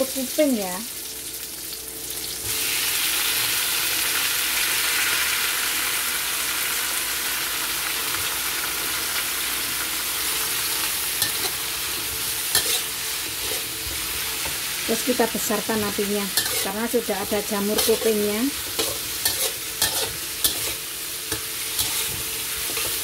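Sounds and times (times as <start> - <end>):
vegetables sizzling in hot oil: 0.0 - 23.0
metal spatula scraping wok: 11.1 - 14.6, 15.8 - 23.0.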